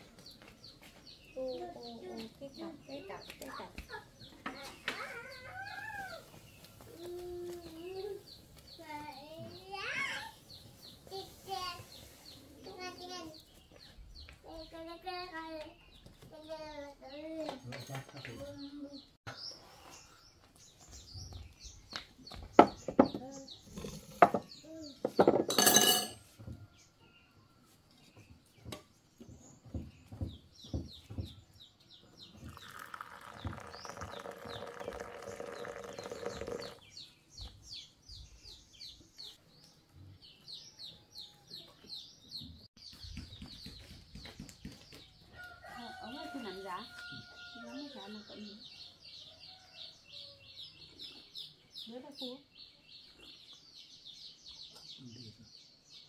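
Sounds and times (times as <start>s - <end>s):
birds chirping: 0.0s - 56.0s
bowls and spoons clinking: 25.2s - 26.3s
water poured from a kettle: 32.5s - 36.8s.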